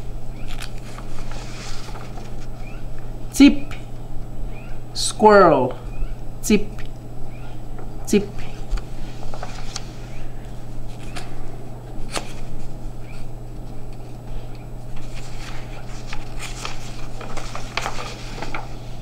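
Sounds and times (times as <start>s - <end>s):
low electrical hum: 0.0s - 19.0s
paper cards rustling and tapping: 0.4s - 3.0s, 7.7s - 10.0s, 13.5s - 19.0s.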